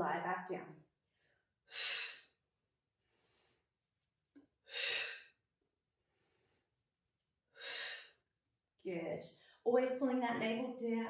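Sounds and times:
woman breathing: 1.0 - 3.9, 4.5 - 8.4.

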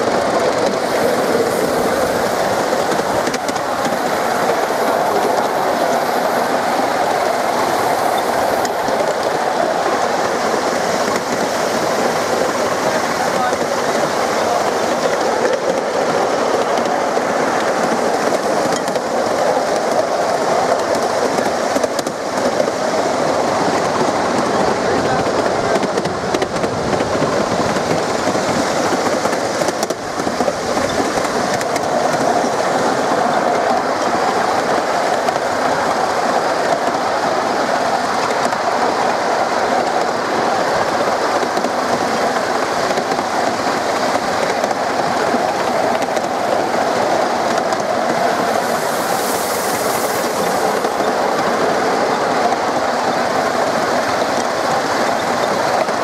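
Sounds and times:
small train wheels clattering on rails: 0.0 - 56.0
high hiss: 0.7 - 24.4, 42.2 - 55.6.

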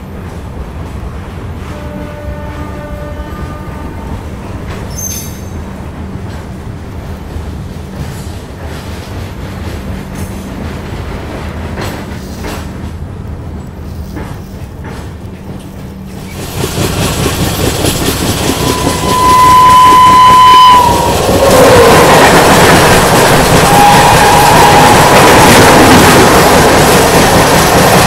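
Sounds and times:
train passing close by: 0.0 - 28.0
train wheels rumbling on track: 0.0 - 28.0
locomotive horn blast: 1.6 - 4.2, 18.5 - 22.3, 23.5 - 25.6.

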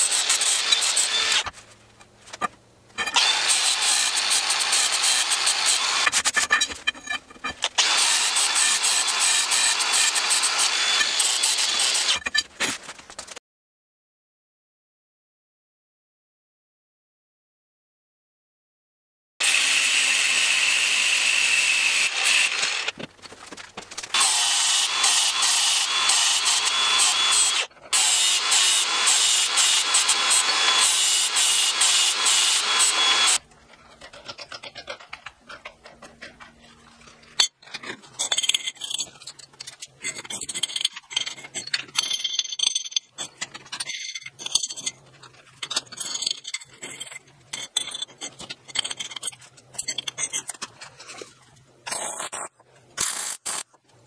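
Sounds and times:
angle grinder cutting steel: 0.0 - 1.5, 3.0 - 12.4, 19.4 - 23.0, 24.2 - 33.4
clinks and scrapes of steel: 0.3 - 3.2, 5.6 - 7.8, 8.9 - 13.4, 24.9 - 53.7.

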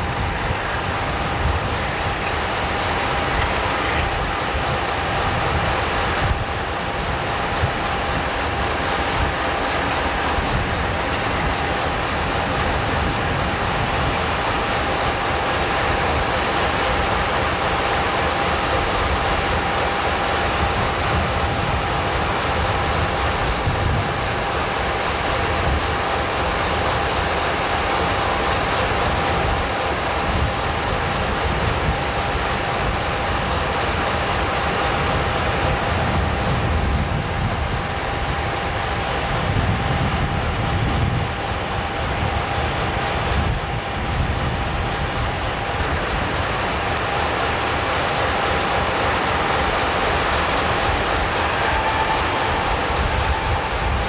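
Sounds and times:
diesel locomotive rumbling: 0.0 - 54.0.

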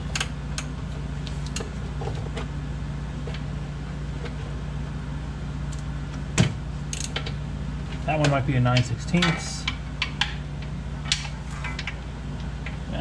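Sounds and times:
steady low hum: 0.0 - 13.0
ratchet clicking: 6.9 - 7.2.

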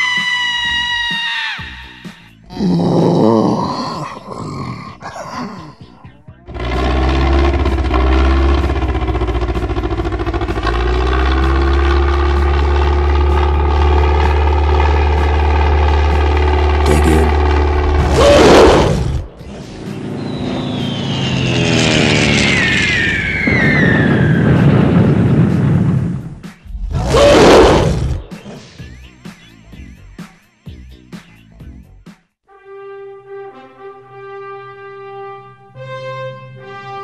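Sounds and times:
whistle falling in pitch: 0.0 - 2.2, 20.0 - 25.0
cartoon propeller plane drone: 0.0 - 2.8, 5.6 - 30.0
loud whoosh: 6.5 - 28.6.

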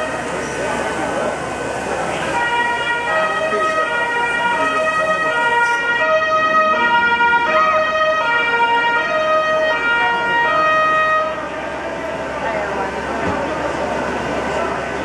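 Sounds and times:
crowd murmur: 0.0 - 15.0
two-tone emergency siren: 2.1 - 11.6.

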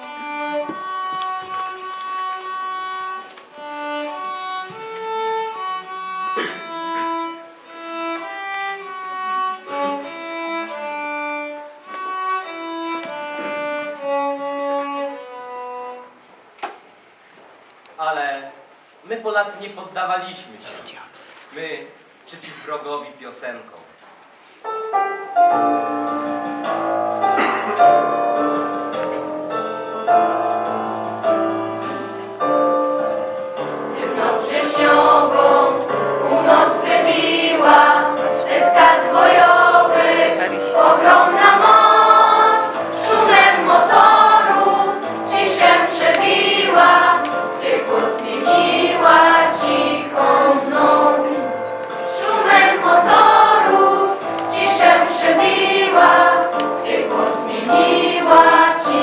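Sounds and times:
musical accompaniment: 0.0 - 16.4, 24.4 - 59.0
children's choir singing: 6.4 - 7.4, 25.4 - 59.0.

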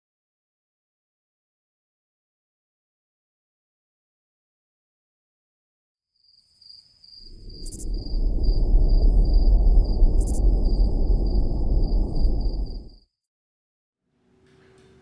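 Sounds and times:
crickets chirping: 6.2 - 13.0
low rumbling noise: 7.2 - 13.0.

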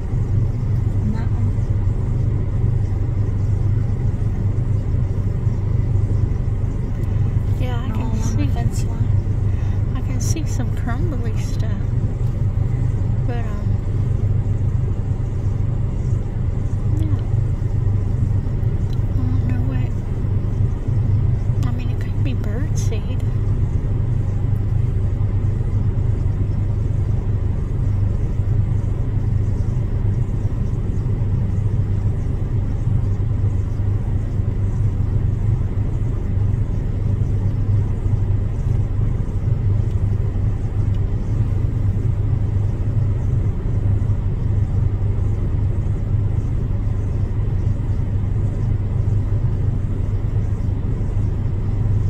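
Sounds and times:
car engine idling: 0.0 - 52.0.

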